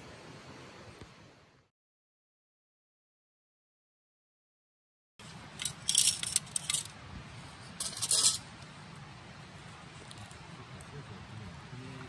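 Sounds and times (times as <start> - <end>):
embers crackling: 5.2 - 11.3.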